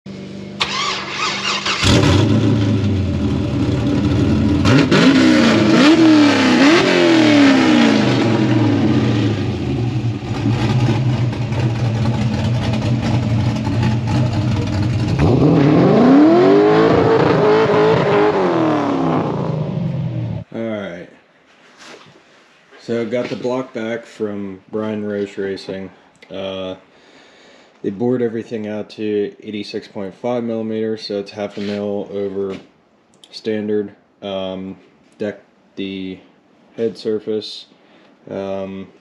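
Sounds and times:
rotary engine revving: 0.6s - 20.5s.

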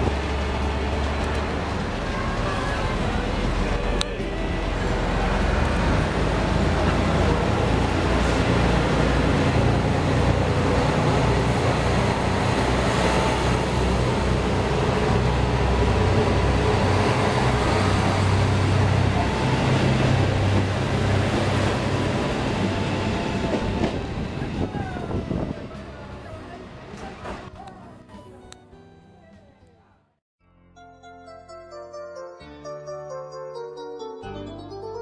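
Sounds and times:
train wheel and rail noise: 0.0s - 27.8s
diesel train engine rumble: 0.0s - 27.9s.

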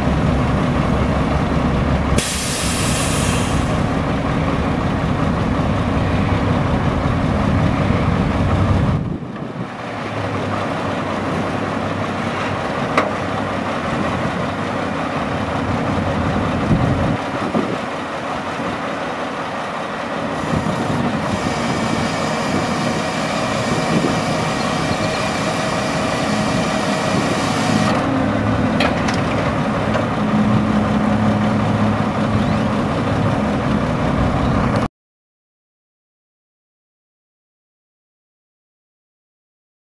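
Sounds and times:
diesel truck engine running: 0.0s - 34.9s.

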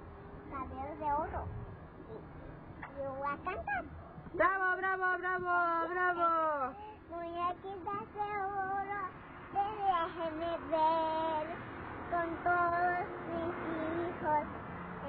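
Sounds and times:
girl singing into a microphone: 6.7s - 14.5s.

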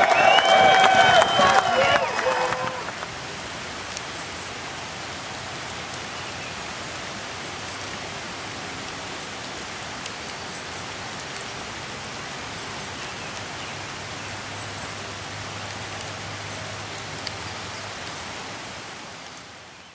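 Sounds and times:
steady rain falling: 0.0s - 19.9s
raindrop ticks: 2.6s - 4.8s, 5.4s - 18.4s.

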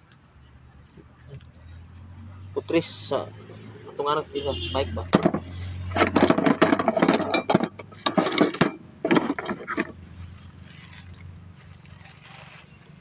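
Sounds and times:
metal hand tools clattering: 5.1s - 10.0s.

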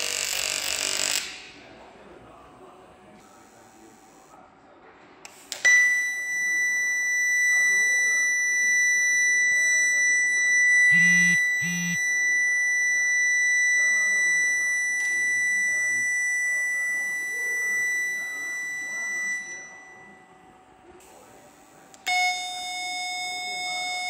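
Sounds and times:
welding arc whine: 0.0s - 1.4s, 11.0s - 15.7s
short buzzes: 10.9s - 12.0s.

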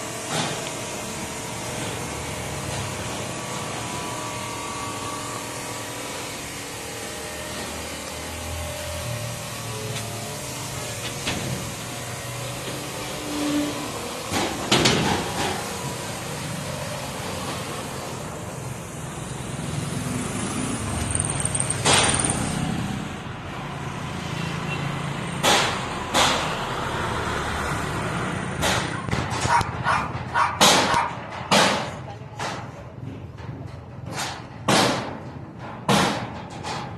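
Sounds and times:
high-pitched squeal: 3.8s - 14.2s
knocks and clanks: 11.0s - 11.8s, 14.3s - 15.7s, 28.6s - 36.9s.

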